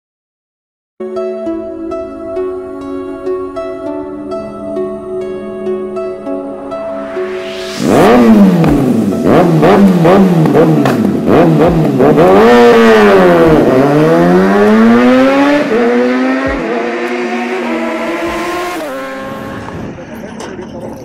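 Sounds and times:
motorcycle accelerating through gears: 0:07.5 - 0:19.9
loud motorcycle engine revving: 0:07.8 - 0:19.8.

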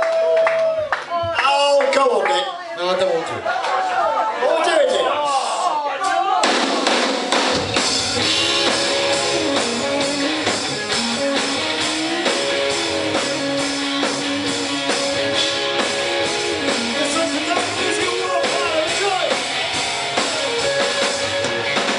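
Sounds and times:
drums: 0:05.2 - 0:21.9
bass guitar: 0:07.6 - 0:21.9
electric guitar: 0:07.6 - 0:21.9.

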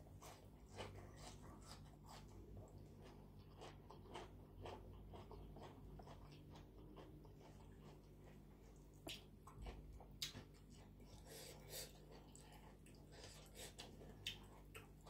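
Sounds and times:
wet chewing clicks: 0:00.2 - 0:11.0, 0:12.0 - 0:15.0.

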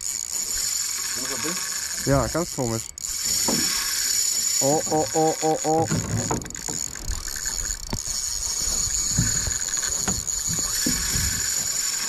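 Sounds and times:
fishing reel drag whine: 0:00.0 - 0:12.0
short low knocks: 0:05.8 - 0:11.8.

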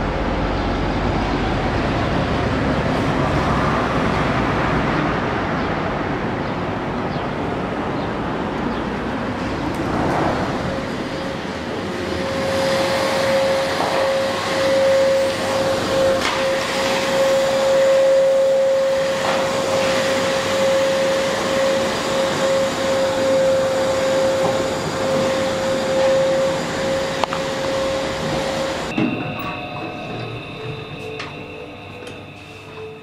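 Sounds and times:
vacuum cleaner running: 0:11.1 - 0:29.0.

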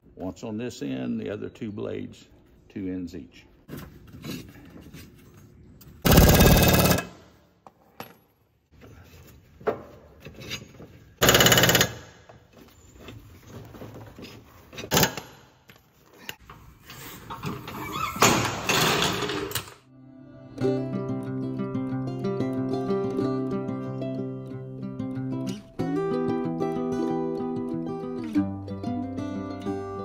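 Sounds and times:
air impact wrench hammering: 0:06.0 - 0:07.3, 0:11.2 - 0:12.3, 0:14.9 - 0:15.4.

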